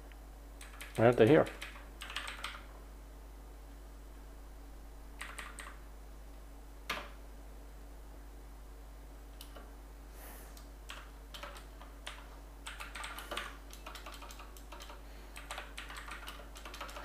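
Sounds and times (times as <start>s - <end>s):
computer keyboard typing: 0.6s - 2.7s, 5.2s - 5.8s, 10.8s - 17.0s.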